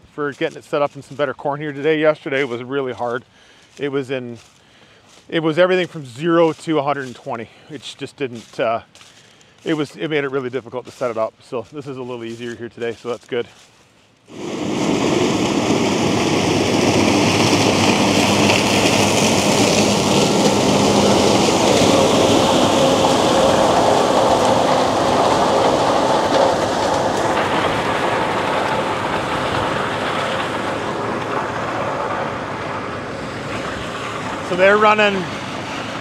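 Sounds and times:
combine harvester running: 14.3s - 36.0s.

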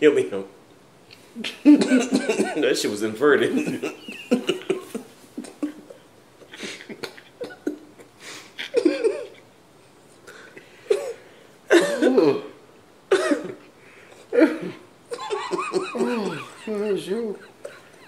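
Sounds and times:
stifled laughter: 1.4s - 2.7s, 3.4s - 9.4s, 14.4s - 18.0s
cough-like bursts of breath: 10.3s - 12.3s.

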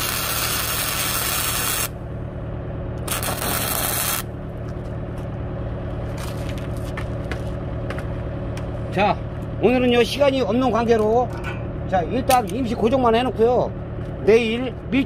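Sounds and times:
arc welding crackling hiss: 0.0s - 2.0s, 3.1s - 4.3s
low hum: 0.0s - 15.0s.

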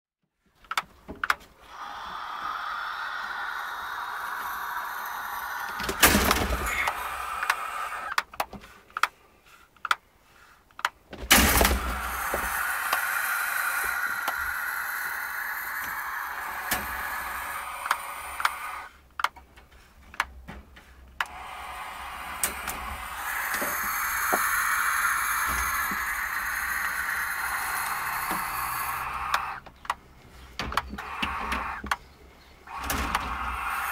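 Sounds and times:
owl hissing: 1.6s - 8.2s, 11.3s - 19.0s, 21.2s - 29.7s, 30.9s - 32.0s, 32.6s - 33.9s
sharp clicks: 5.7s - 9.2s, 10.7s - 19.4s, 21.2s - 30.0s, 32.7s - 33.9s.

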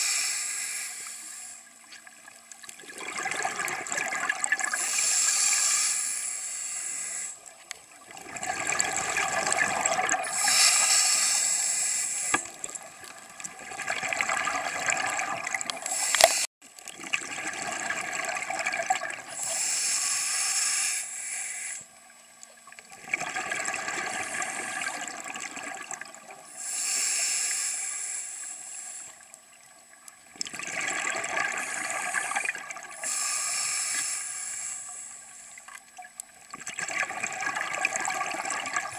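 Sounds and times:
regulator hissing inhale: 0.0s - 1.7s, 4.8s - 7.5s, 10.2s - 12.5s, 15.8s - 16.5s, 19.3s - 21.9s, 26.5s - 29.3s, 33.0s - 35.6s
gurgling exhaled bubbles: 2.6s - 5.0s, 8.0s - 10.9s, 12.3s - 19.5s, 22.9s - 26.5s, 30.4s - 33.2s, 36.5s - 38.9s.

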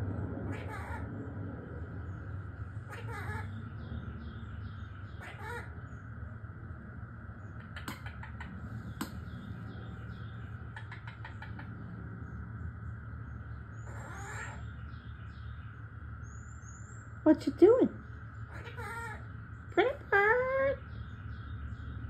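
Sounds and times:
steady low hum: 0.0s - 22.0s
parrot squawking: 0.5s - 1.1s, 2.8s - 3.6s, 5.2s - 5.8s, 7.6s - 8.5s, 10.7s - 11.7s, 13.8s - 14.7s, 18.5s - 19.3s.

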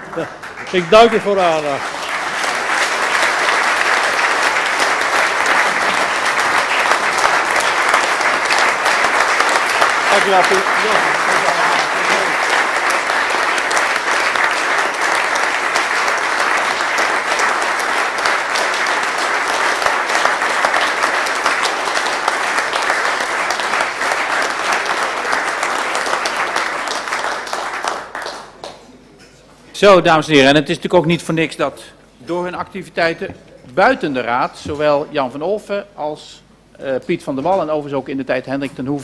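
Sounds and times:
crowd applause: 0.0s - 29.0s.

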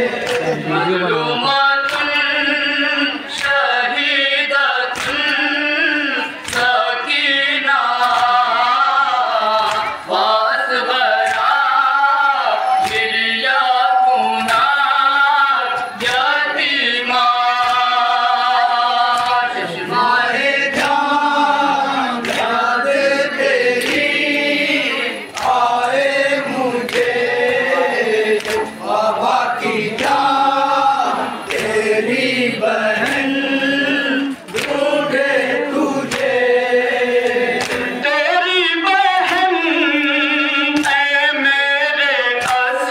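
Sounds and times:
men chanting together: 0.0s - 42.9s
hands slapping chests: 0.2s - 0.6s, 4.9s - 5.4s, 6.4s - 6.7s, 22.2s - 22.6s, 26.8s - 27.3s, 28.3s - 28.8s, 31.0s - 31.9s, 34.5s - 34.8s, 36.0s - 36.4s, 37.2s - 37.9s.

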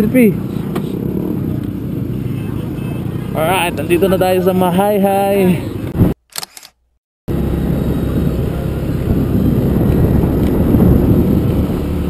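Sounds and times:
wind rumble on microphone: 5.9s - 6.2s, 7.3s - 12.0s
motor scooter riding: 7.3s - 12.0s.

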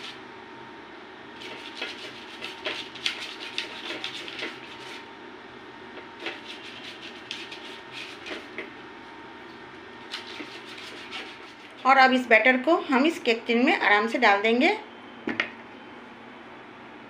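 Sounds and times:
fingers rustling paper: 1.4s - 5.0s, 6.2s - 8.5s, 10.1s - 11.8s.

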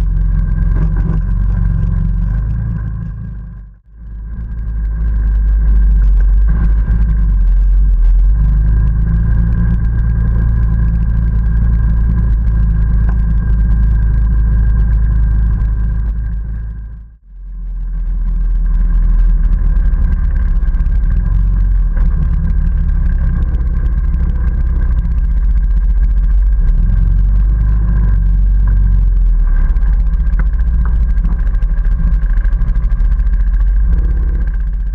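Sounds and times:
atv engine running: 0.0s - 34.9s.

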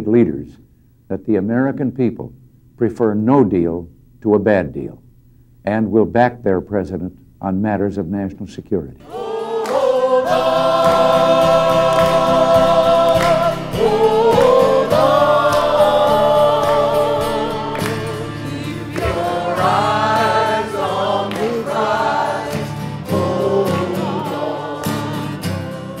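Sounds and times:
choir singing held notes: 9.0s - 26.0s.

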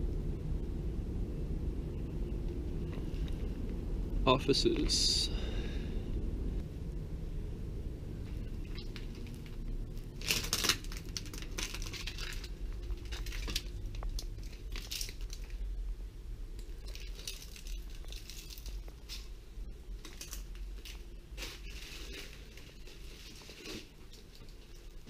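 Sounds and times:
footsteps crunching over debris: 16.7s - 25.0s.

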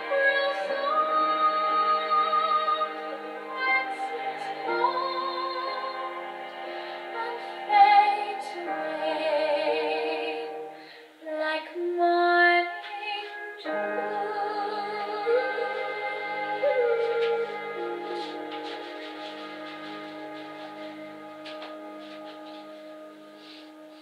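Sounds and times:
woman singing slow song: 0.0s - 18.5s.

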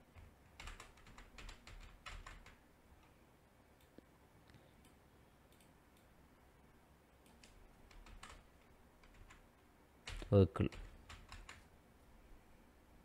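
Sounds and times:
faint keyboard typing: 0.0s - 3.2s, 3.8s - 6.2s, 7.2s - 11.7s.

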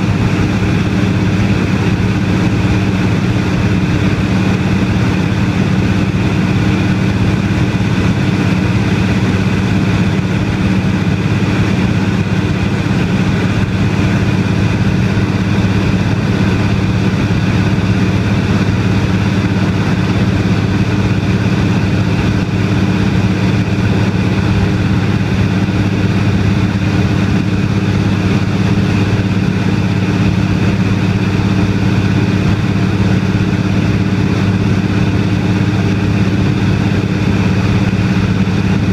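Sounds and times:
plane engine and propeller droning: 0.0s - 38.9s.

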